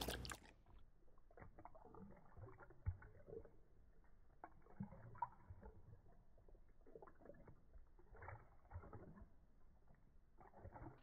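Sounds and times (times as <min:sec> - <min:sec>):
dog lapping water from metal bowl: 0:00.0 - 0:11.0.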